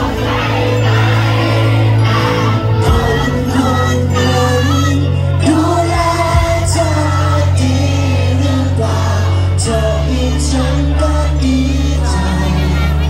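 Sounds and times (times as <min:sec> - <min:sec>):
live pop band playing: 0:00.0 - 0:13.0
person singing: 0:00.0 - 0:13.0.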